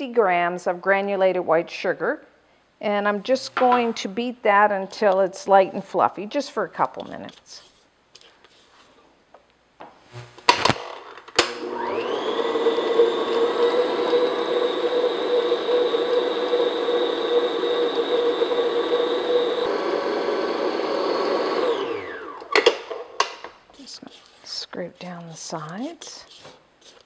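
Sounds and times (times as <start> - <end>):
stand mixer motor whine: 11.5 - 22.6.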